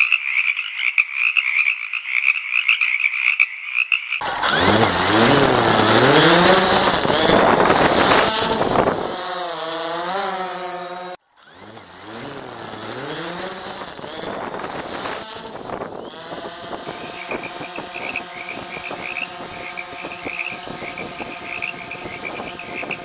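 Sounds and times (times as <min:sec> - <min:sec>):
frogs croaking: 0:00.0 - 0:04.2
drone propellers humming: 0:04.2 - 0:23.0.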